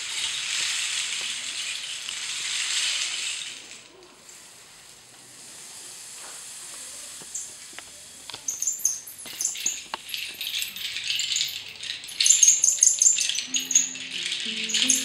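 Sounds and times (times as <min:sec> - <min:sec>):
rainstick rattling: 0:00.0 - 0:03.9, 0:08.5 - 0:15.0
low held music notes: 0:13.5 - 0:15.0.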